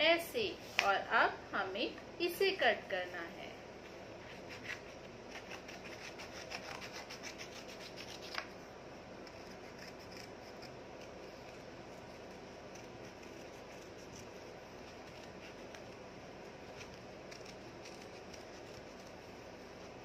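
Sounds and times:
scissors snipping paper: 4.5s - 8.5s, 9.2s - 19.5s.

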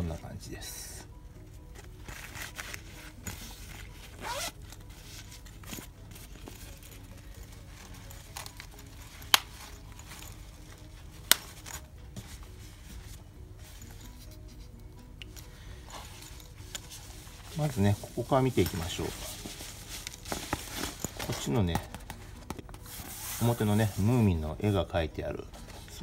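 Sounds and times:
cloth pouch rustling: 1.0s - 26.0s
zipper being pulled: 2.0s - 11.8s.

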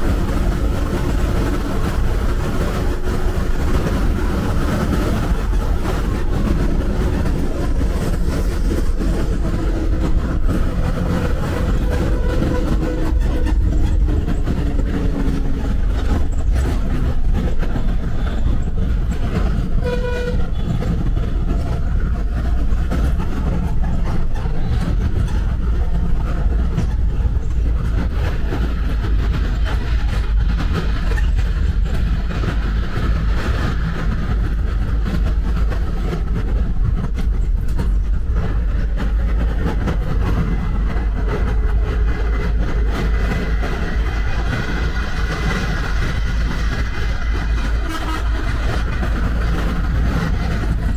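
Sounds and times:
bus engine and road rumble: 0.0s - 50.9s
vehicle horn toot: 19.8s - 20.7s.

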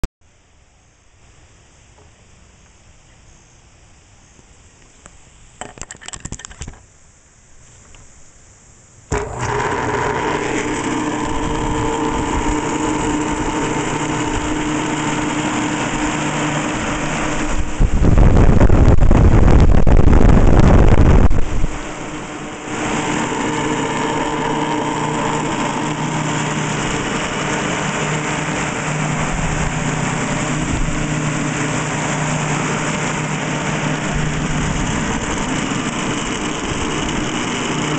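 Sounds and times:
power plug clatter: 5.6s - 6.8s
exhaust fan humming and rumbling: 7.9s - 37.9s
airflow rushing across microphone: 11.2s - 37.6s.

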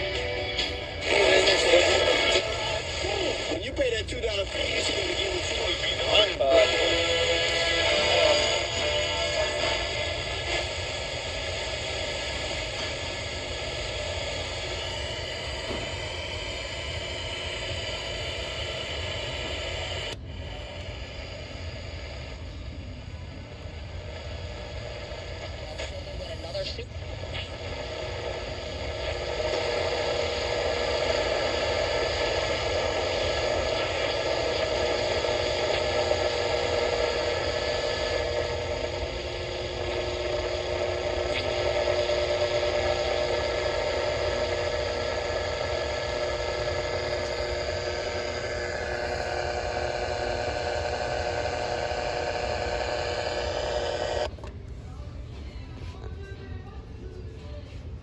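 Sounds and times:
radio static hiss: 0.0s - 54.9s.

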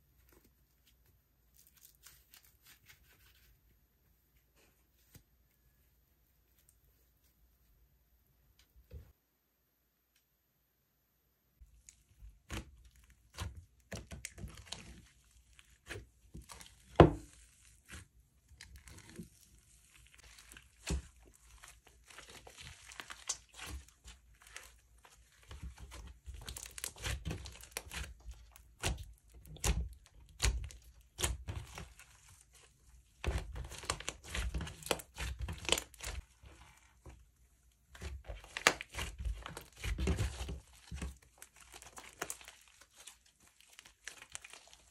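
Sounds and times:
slime crackling and popping: 11.6s - 37.0s, 37.7s - 44.9s.

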